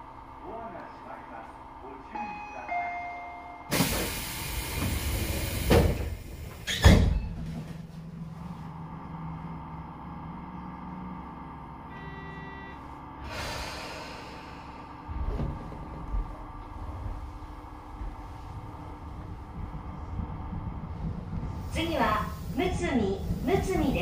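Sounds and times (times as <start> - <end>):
air hissing: 3.7 - 6.4
train doors thudding shut: 3.7 - 7.8, 15.1 - 16.4
short beep: 11.9 - 12.9.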